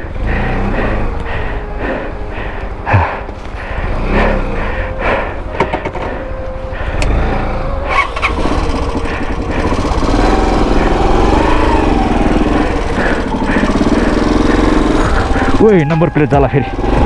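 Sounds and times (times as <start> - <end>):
dirt bike engine revving: 0.0 - 2.0, 2.9 - 5.3, 6.9 - 17.0.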